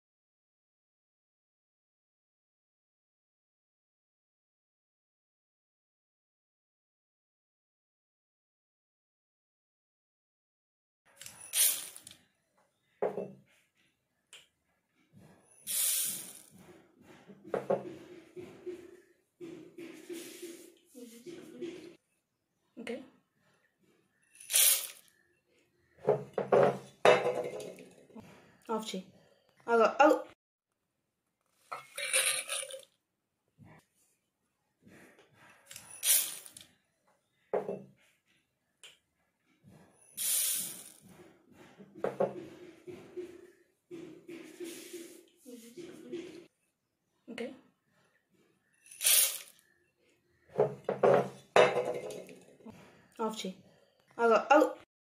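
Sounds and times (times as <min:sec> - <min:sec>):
seeds pouring into steel jar: 0:11.2 - 0:12.1, 0:15.7 - 0:16.5, 0:24.3 - 0:25.1, 0:35.8 - 0:36.6, 0:40.2 - 0:41.0, 0:48.8 - 0:49.6
grains pattering into steel jar: 0:11.5 - 0:12.0, 0:24.4 - 0:25.0, 0:48.9 - 0:49.6.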